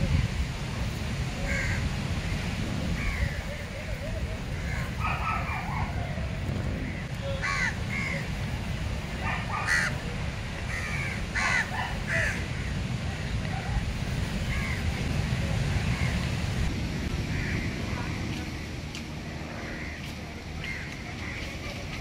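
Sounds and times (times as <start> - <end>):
steady low rumble: 0.0 - 11.2, 12.4 - 22.0
crows cawing: 1.4 - 1.9, 3.0 - 3.6, 4.5 - 6.0, 6.8 - 8.3, 9.2 - 10.0, 10.7 - 12.8, 14.5 - 14.9, 17.3 - 17.7, 19.5 - 21.6.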